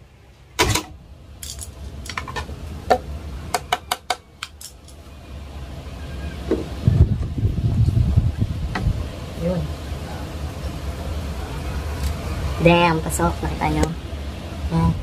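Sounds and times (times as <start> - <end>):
metal screws clinking: 1.4 - 2.4, 4.5 - 5.0.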